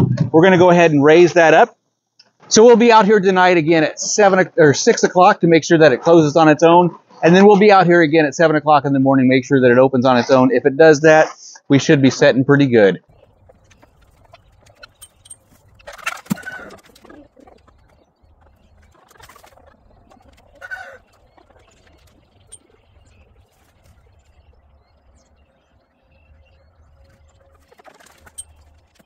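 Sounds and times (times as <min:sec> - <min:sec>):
chickens clucking: 0:13.1 - 0:29.0.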